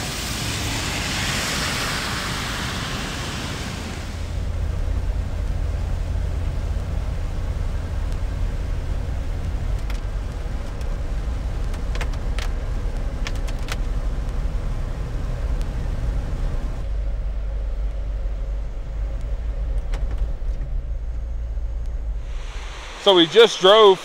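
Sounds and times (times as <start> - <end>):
hiss of wet pavement: 0.0 - 5.8, 22.2 - 24.0
engine and tyres rumbling: 0.0 - 23.2.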